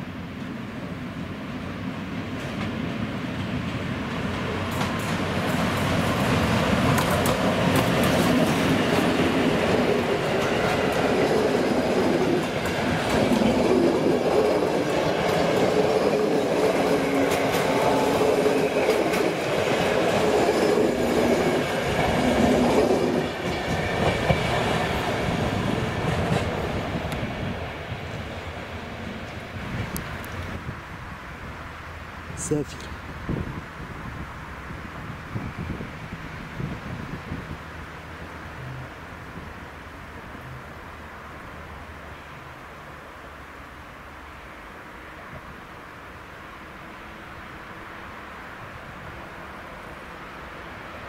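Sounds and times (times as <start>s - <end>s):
train rumble: 0.0s - 51.0s
train wheels clacking: 3.4s - 27.3s.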